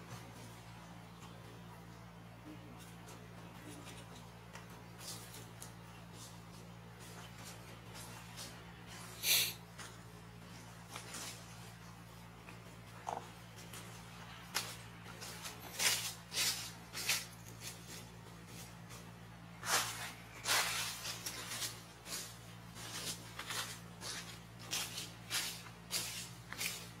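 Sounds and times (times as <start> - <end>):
low steady hum: 0.0 - 27.0
dry leaves rustling and crackling: 13.6 - 27.0.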